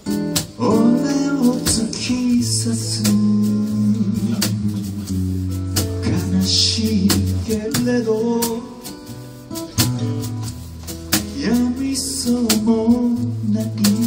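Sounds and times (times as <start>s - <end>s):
strummed acoustic guitar: 0.0s - 14.0s
man singing: 0.5s - 9.0s, 11.3s - 14.0s.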